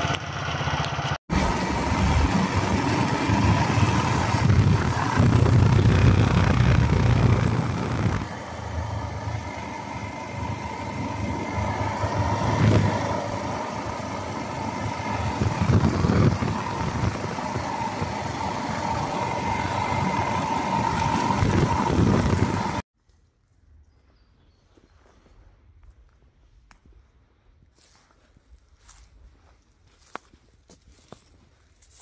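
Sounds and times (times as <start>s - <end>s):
motorcycle engine running: 0.0s - 22.8s
wind and road noise: 0.0s - 22.9s
steady tone: 1.3s - 22.8s.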